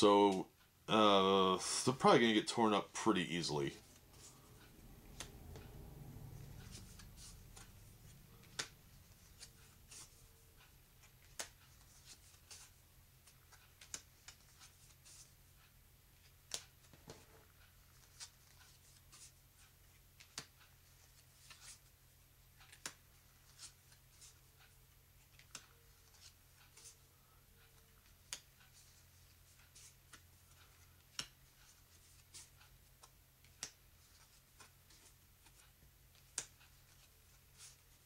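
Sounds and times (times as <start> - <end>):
cards sliding: 3.8 - 5.7, 6.4 - 10.2, 11.0 - 15.3.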